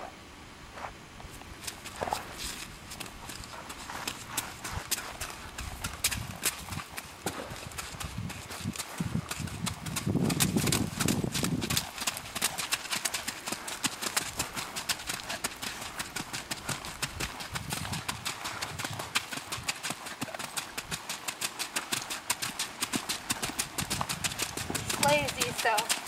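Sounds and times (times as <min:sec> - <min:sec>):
horse hoofbeats trotting: 0:01.6 - 0:26.0.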